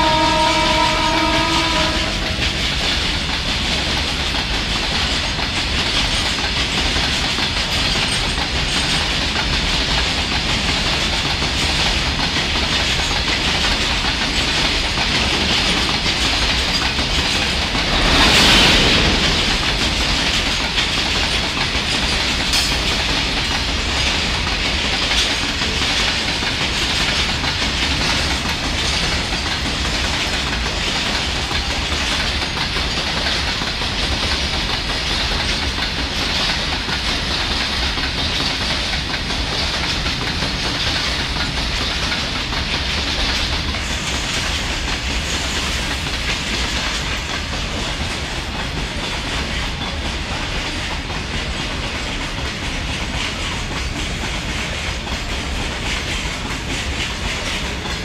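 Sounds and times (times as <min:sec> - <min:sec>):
locomotive horn: 0:00.0 - 0:02.4
freight train wheels rumbling: 0:00.0 - 0:58.0.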